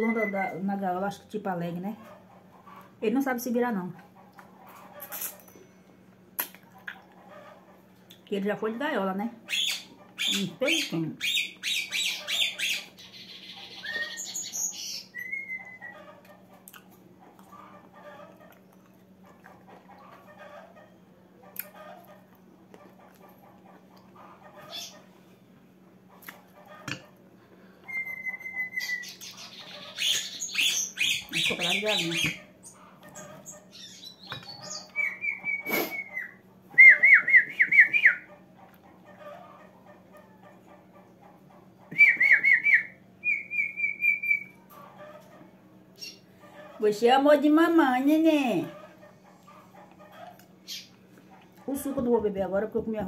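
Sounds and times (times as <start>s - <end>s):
songbird chirping: 9.5s - 16.2s, 27.9s - 38.3s, 42.0s - 44.6s.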